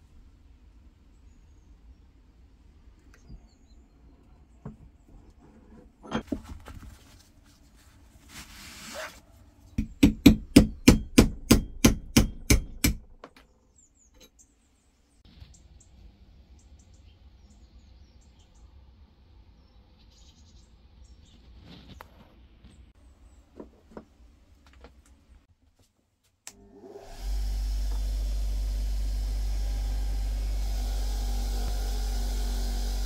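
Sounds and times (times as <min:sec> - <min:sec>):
knocks and scrape in a vise: 0:04.6 - 0:06.8
hammer striking steel punch: 0:09.8 - 0:13.2.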